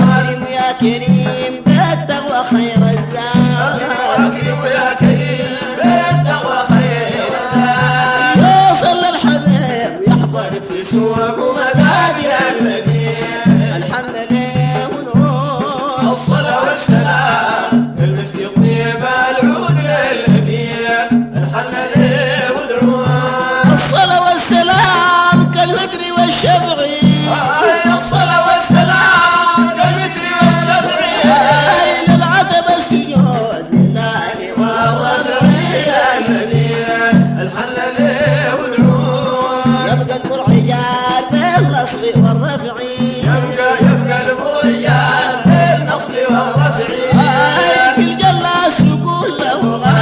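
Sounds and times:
hand drums beating: 0.0s - 50.0s
men singing wavering melody: 0.0s - 50.0s.

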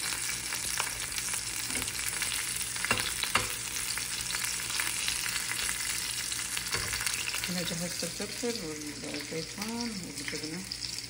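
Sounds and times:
peppers sizzling in hot oil: 0.0s - 11.0s
tongs clicking against pan: 2.8s - 3.6s.

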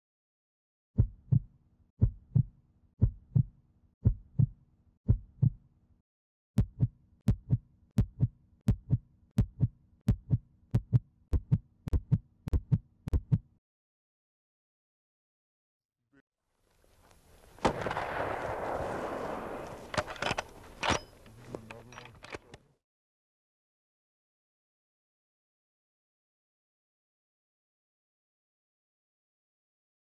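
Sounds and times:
heartbeat: 1.0s - 5.7s, 6.6s - 13.6s.

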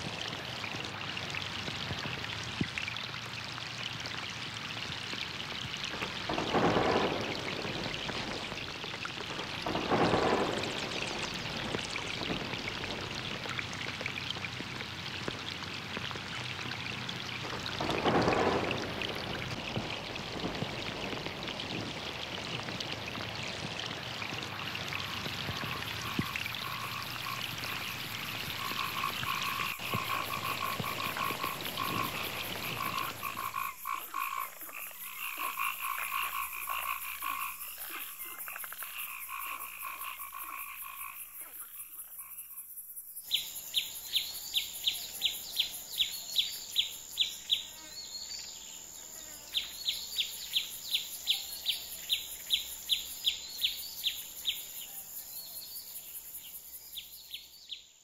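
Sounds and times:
steady rain: 0.0s - 57.7s
frogs croaking: 0.0s - 58.0s
thunder rolling: 5.9s - 14.7s, 17.4s - 34.4s.

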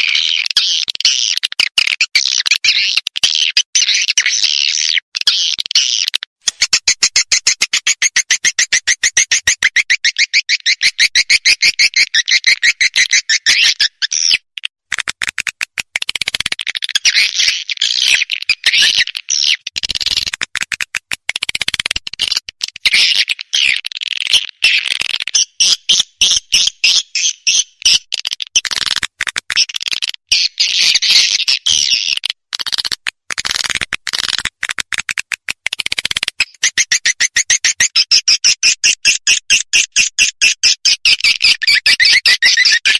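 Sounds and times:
swiftlet high chirps and twitters: 41.0s - 42.9s.

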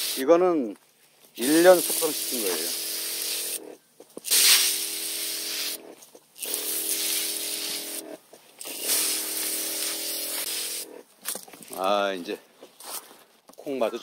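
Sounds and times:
hissing spray: 0.0s - 0.3s, 1.4s - 11.0s.

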